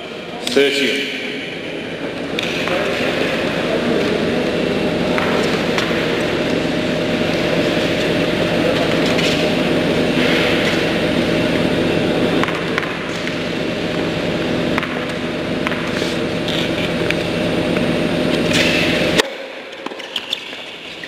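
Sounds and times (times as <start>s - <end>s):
indoor hall background noise: 0.0s - 21.0s.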